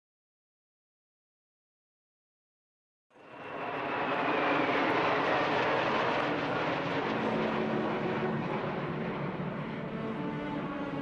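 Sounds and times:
fighter jets roaring past: 3.2 - 11.0.

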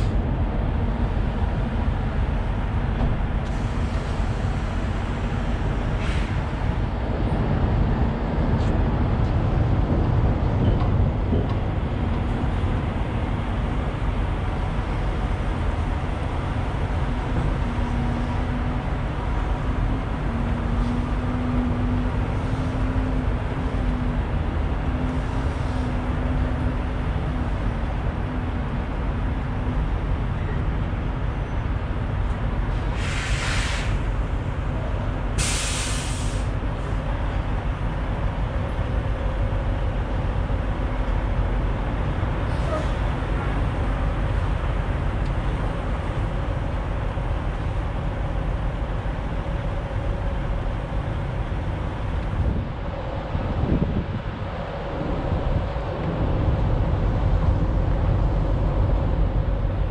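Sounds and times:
vehicle engine rumbling: 0.0 - 59.9
short hiss: 33.0 - 34.0, 35.4 - 36.5.

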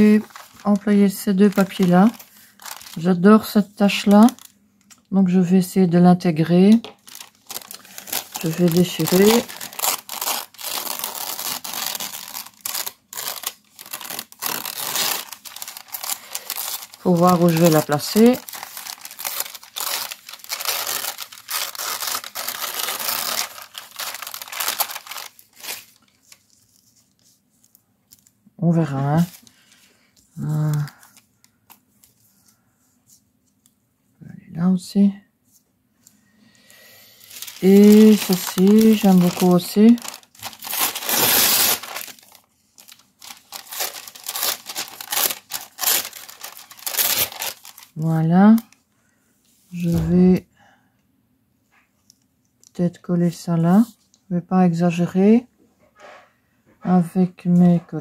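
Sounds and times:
paper rustling and crinkling: 0.0 - 5.1, 6.5 - 33.7, 37.2 - 48.7
paper tearing: 7.0 - 26.4, 37.3 - 47.9.

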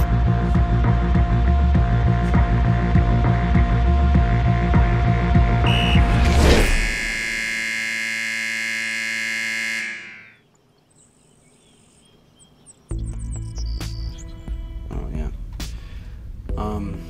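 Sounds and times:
music: 0.0 - 6.7, 12.9 - 17.0
scoreboard horn buzz: 5.4 - 10.4
faint high chirps: 5.7 - 6.1.

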